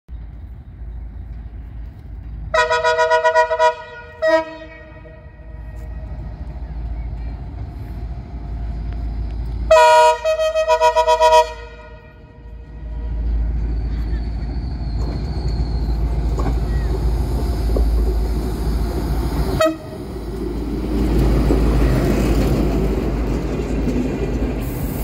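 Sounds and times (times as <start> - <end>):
low rumble of train: 0.1 - 25.0
locomotive horn blasts: 2.5 - 6.2, 9.7 - 13.4, 19.6 - 20.0.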